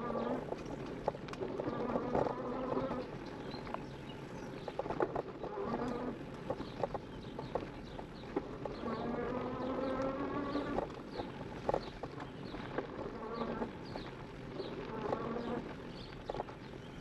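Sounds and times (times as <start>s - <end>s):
tyres rolling over dirt: 0.0s - 17.0s
electric motor whining: 8.6s - 11.0s.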